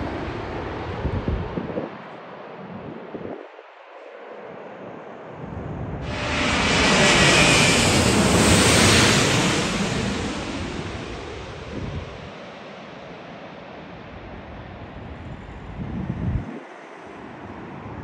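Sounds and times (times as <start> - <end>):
jet airliner passing overhead: 0.0 - 2.6, 3.9 - 18.0
wind buffeting microphone: 0.6 - 3.6, 5.3 - 12.5, 14.1 - 18.0.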